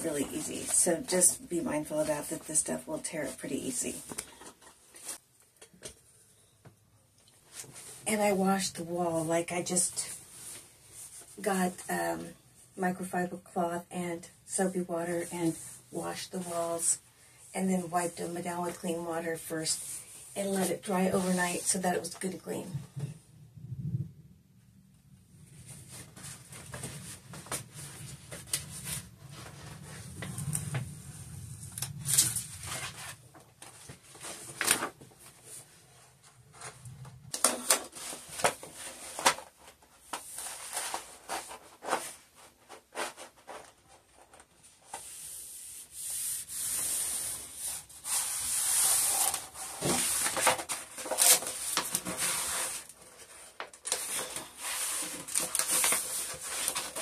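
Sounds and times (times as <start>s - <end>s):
wallpaper crackling and crinkling: 0.0s - 6.3s, 15.1s - 23.1s, 25.3s - 57.0s
rubbing paper against wall: 40.2s - 53.5s.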